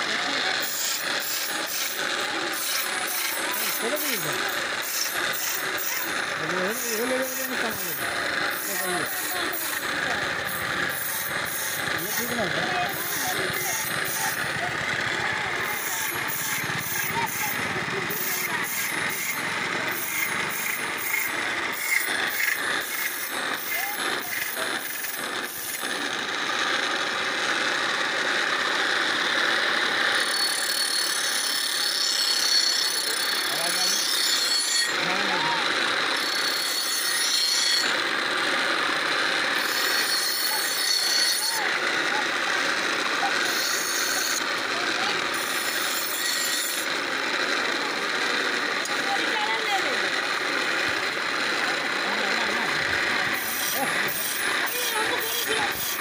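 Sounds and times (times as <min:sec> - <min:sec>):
grinding wheel whirring: 0:00.0 - 0:56.0.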